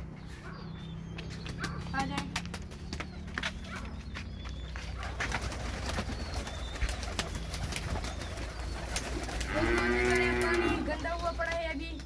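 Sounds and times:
footsteps on dirt: 0.0s - 5.6s
drawn-out rising and falling call: 0.0s - 12.0s
pigeons cooing: 0.1s - 12.0s.

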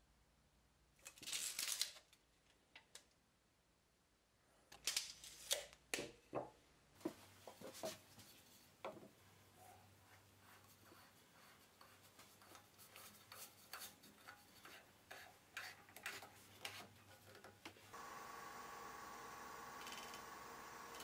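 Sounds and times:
faint steady hum: 17.9s - 21.0s.

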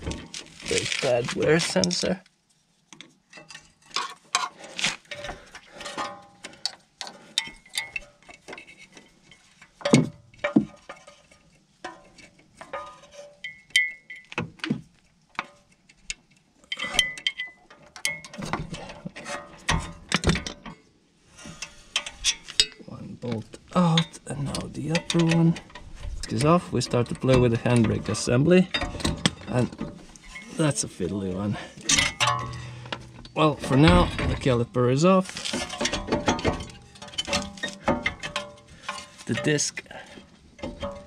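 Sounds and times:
metal tools clinking: 5.1s - 8.7s, 11.9s - 14.4s, 21.5s - 41.0s
metal part ringing: 13.4s - 14.4s, 31.8s - 34.4s.

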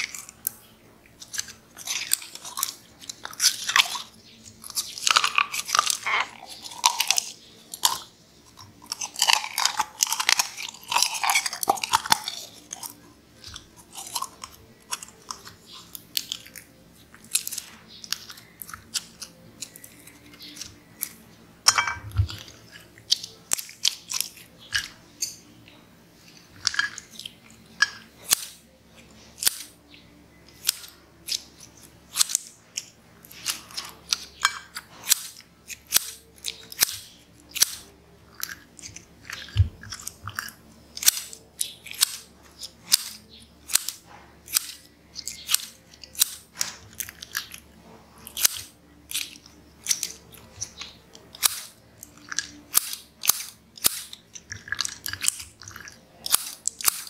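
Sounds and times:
slime squelching and crackling: 0.0s - 21.3s, 30.5s - 57.0s
scissor snips: 29.4s - 29.7s, 30.5s - 40.2s, 41.0s - 47.6s, 48.2s - 57.0s.

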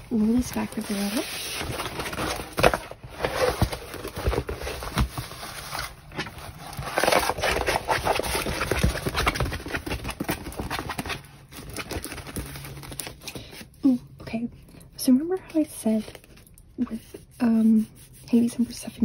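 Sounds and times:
canvas and plastic film crinkling: 0.0s - 13.8s.

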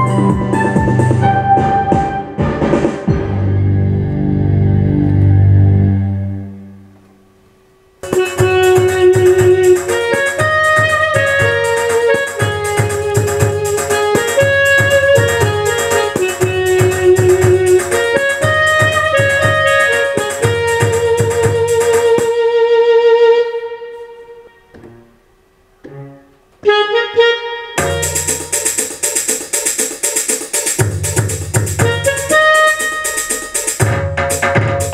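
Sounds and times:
drum rhythm: 0.0s - 3.4s, 8.0s - 22.4s, 27.8s - 34.9s
keyboard rhythm with melody: 0.0s - 6.2s, 8.0s - 22.4s, 26.6s - 34.9s.

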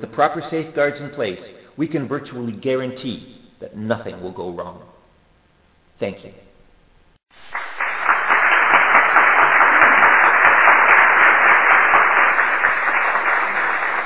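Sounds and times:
audience applauding: 7.3s - 14.0s.

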